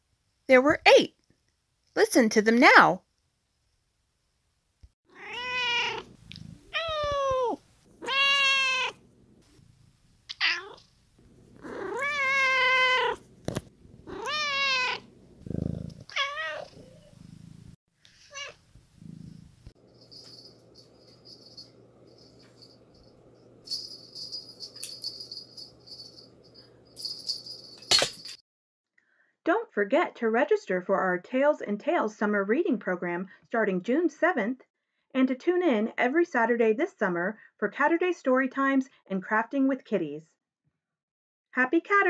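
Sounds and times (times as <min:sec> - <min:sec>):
cat meowing: 0:05.1 - 0:09.0, 0:10.3 - 0:10.8, 0:11.6 - 0:13.2, 0:14.0 - 0:15.1, 0:16.0 - 0:17.1, 0:18.2 - 0:18.6
faint steady hum: 0:18.6 - 0:27.6
light high jingling: 0:19.8 - 0:28.4.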